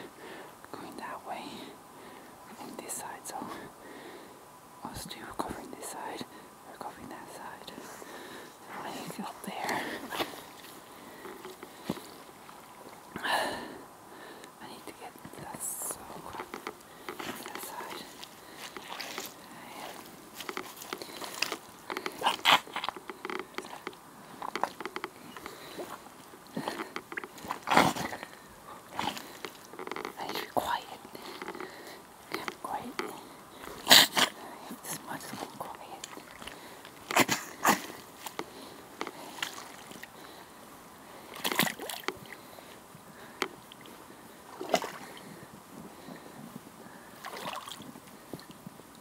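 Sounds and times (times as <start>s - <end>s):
boots wading through water: 9.4s - 13.1s, 15.3s - 32.6s, 35.2s - 40.6s, 41.2s - 45.4s, 47.1s - 48.6s.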